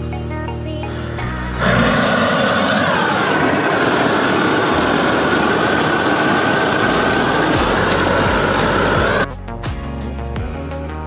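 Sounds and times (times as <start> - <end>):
loud machine whining: 0.8 - 9.3.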